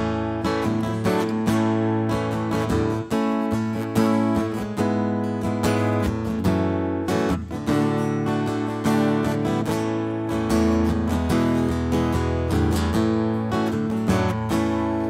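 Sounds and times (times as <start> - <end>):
acoustic guitar strumming chords: 0.0 - 15.0.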